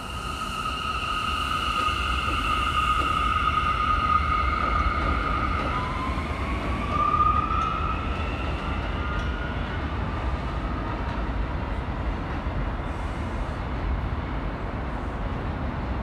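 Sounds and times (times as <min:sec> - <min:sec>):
low rumble of wheels on rails: 0:00.0 - 0:16.0
subway train propulsion whine: 0:00.0 - 0:16.0.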